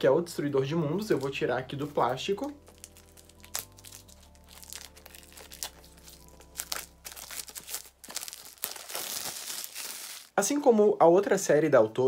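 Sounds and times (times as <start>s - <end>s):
plastic shrink-wrap crinkling: 1.0s - 10.5s.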